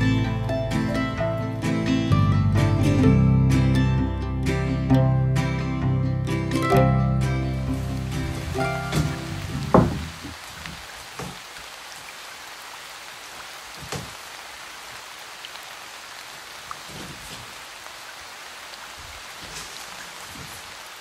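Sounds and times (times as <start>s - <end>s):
steady rain falling: 6.2s - 21.0s
soft knocks: 8.8s - 10.4s.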